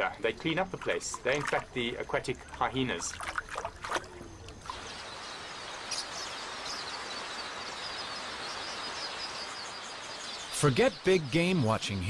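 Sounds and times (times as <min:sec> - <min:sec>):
even outdoor hiss: 0:00.0 - 0:12.0
faint high chirping: 0:00.0 - 0:12.0.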